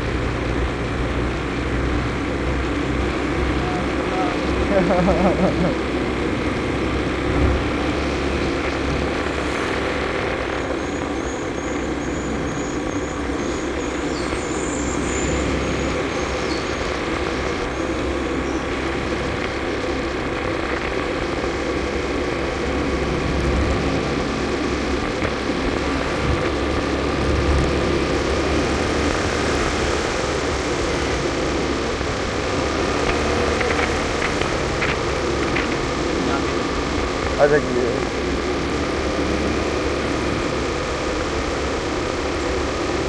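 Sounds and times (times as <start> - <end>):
scooter engine running: 0.0 - 43.0
wind noise: 6.2 - 37.4.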